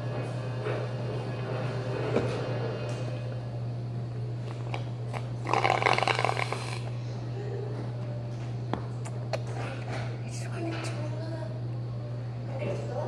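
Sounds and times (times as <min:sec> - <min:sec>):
child slurping through a straw: 0:05.1 - 0:06.9.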